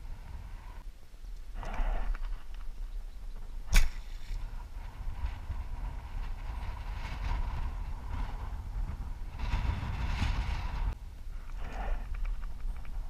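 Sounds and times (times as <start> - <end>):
wind rumble on microphone: 0.0 - 13.0
bow string snap: 3.7 - 4.4.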